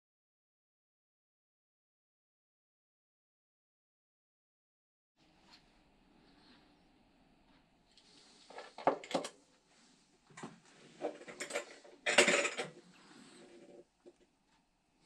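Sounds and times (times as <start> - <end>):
hard objects clinking and knocking: 11.0 - 13.8.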